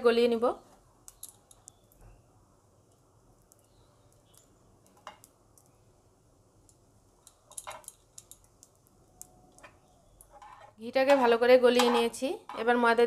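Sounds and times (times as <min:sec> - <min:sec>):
spoon scraping frying pan: 0:10.3 - 0:10.8.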